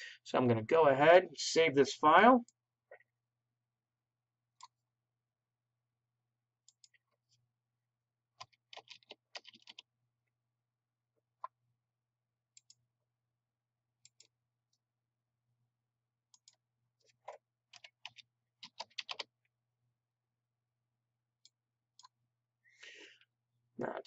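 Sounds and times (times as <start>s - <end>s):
keyboard keystrokes: 8.4s - 9.8s, 17.2s - 19.3s.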